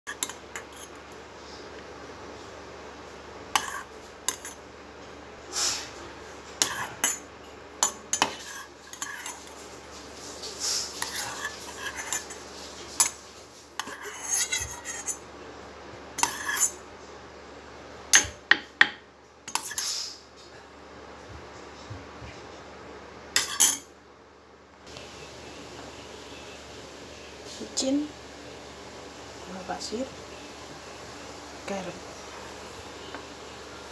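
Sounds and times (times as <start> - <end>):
dishes scraping: 0.1 - 1.0, 3.5 - 4.6, 6.5 - 9.6, 10.4 - 15.2, 16.2 - 16.8, 18.2 - 20.0, 23.4 - 23.9
cutlery and dishes clinking: 3.6 - 4.6, 6.6 - 9.5, 13.0 - 13.2, 16.2 - 16.8, 23.4 - 23.9.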